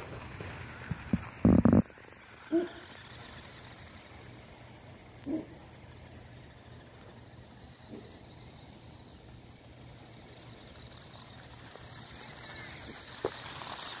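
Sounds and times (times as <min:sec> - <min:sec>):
toy car humming over snow: 0:00.0 - 0:14.0.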